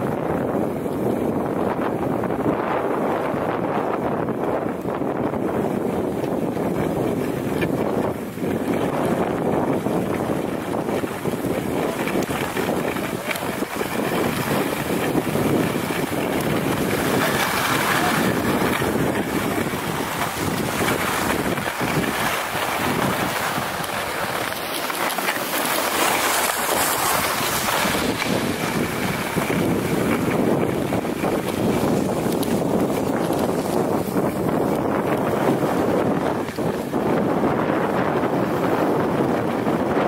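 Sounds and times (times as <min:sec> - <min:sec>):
wind buffeting microphone: 0:00.0 - 0:40.0
skis hissing over snow: 0:06.1 - 0:37.8.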